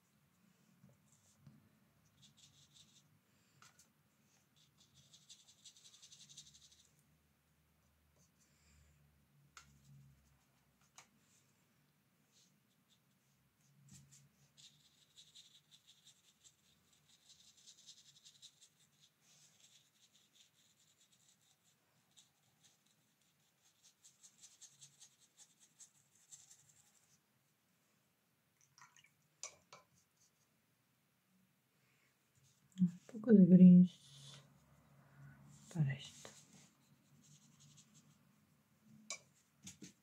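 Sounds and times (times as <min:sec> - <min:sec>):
brush scratching on paper: 0:02.1 - 0:03.1, 0:03.7 - 0:07.0, 0:12.3 - 0:27.2, 0:35.5 - 0:38.3.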